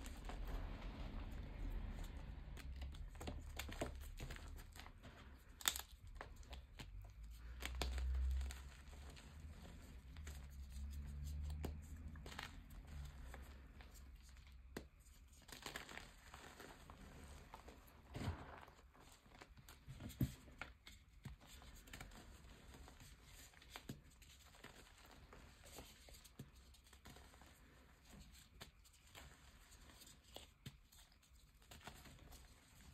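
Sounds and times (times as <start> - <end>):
chalk crunching and crackling: 0.0 - 19.8.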